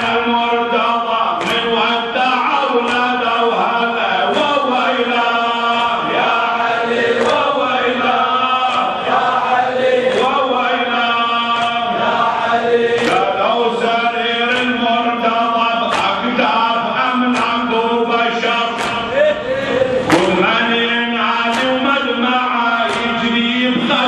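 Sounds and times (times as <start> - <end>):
men chanting a lament: 0.0 - 24.0
hands slapping chests: 1.4 - 1.7, 7.1 - 7.5, 12.9 - 13.3, 18.8 - 19.1.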